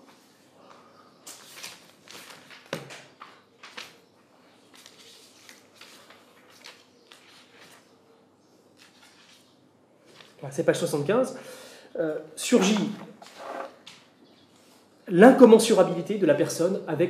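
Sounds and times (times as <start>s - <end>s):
book pages rustling: 0.0s - 8.0s, 8.7s - 10.4s, 12.5s - 14.9s.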